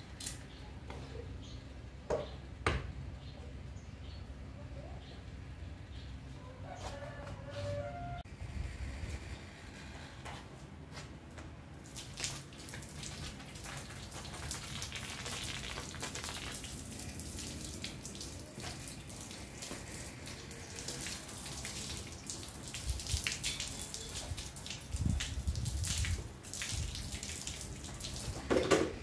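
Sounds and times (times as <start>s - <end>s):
hose water spraying on metal frame: 11.8s - 29.0s.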